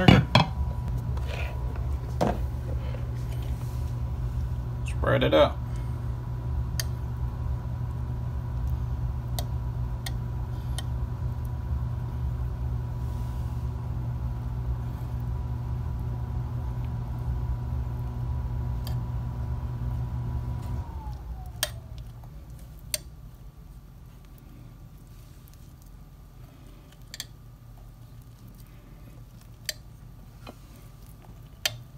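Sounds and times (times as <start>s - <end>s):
appliance motor humming: 0.0s - 25.4s.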